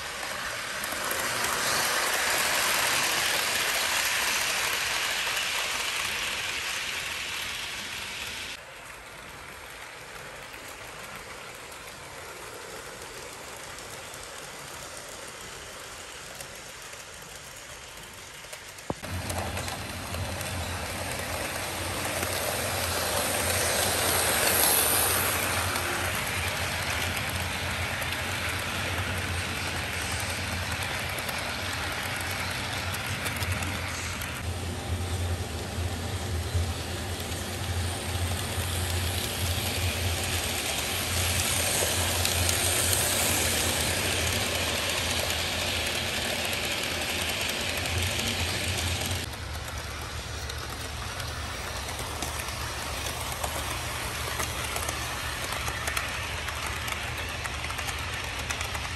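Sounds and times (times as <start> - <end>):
model train wheels rattling on rails: 0.0 - 58.9.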